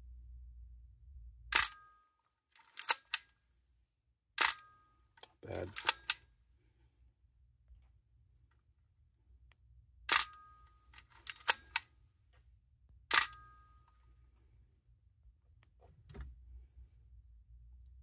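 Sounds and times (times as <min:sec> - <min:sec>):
camera shutter clack: 0:01.5 - 0:01.8, 0:02.6 - 0:03.3, 0:04.4 - 0:04.7, 0:05.7 - 0:06.2, 0:10.1 - 0:10.4, 0:11.0 - 0:11.9, 0:13.1 - 0:13.4
film advance lever clicks: 0:13.1 - 0:13.4.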